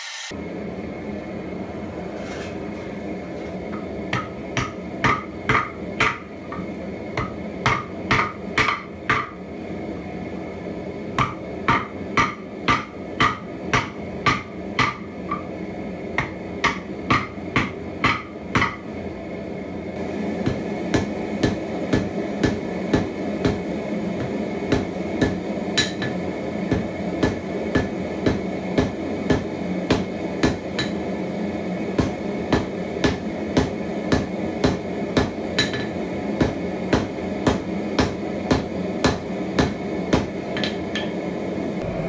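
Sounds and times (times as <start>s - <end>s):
hammer striking metal on anvil: 3.7s - 9.4s, 11.2s - 15.5s, 16.2s - 18.8s, 20.4s - 31.0s, 32.0s - 41.2s.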